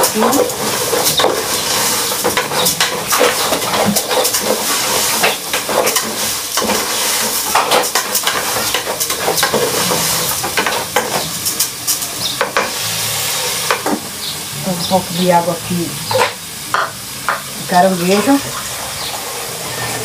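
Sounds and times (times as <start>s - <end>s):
spoon scraping a pot: 0.0s - 11.7s, 16.1s - 17.5s
rice sizzling in oil: 0.0s - 20.0s.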